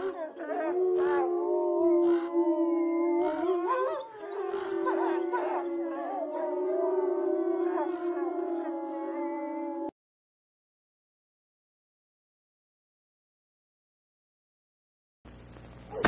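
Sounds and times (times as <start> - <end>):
wolves howling: 0.0 - 9.9.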